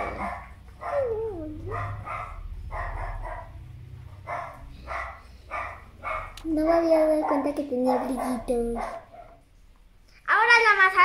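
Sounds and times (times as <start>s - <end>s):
dog whining: 0.0s - 2.1s
dog barking: 0.0s - 6.4s, 7.2s - 9.4s.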